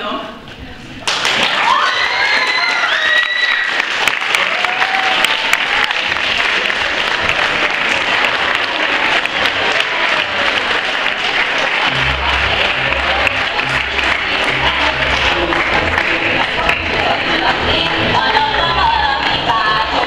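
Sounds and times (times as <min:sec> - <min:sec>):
audience applauding: 0:01.1 - 0:17.5
music with thumping bass beat: 0:11.8 - 0:19.1.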